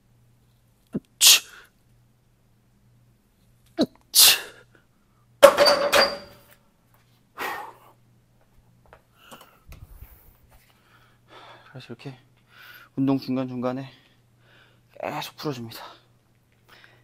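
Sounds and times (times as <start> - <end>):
barbell clanging on metal rack: 5.4 - 6.4.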